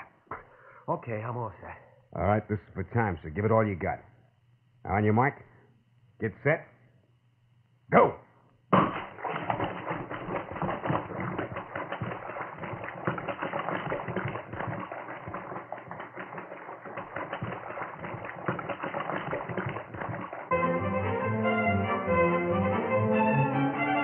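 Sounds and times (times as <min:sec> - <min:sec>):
swimmer splashing in pool: 0:08.9 - 0:20.5.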